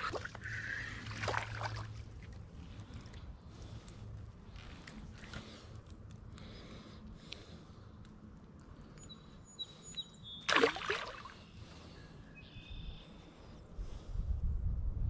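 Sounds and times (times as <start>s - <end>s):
fish splashing into water: 0.0s - 2.2s, 10.5s - 11.4s
outdoor background noise: 0.0s - 15.0s.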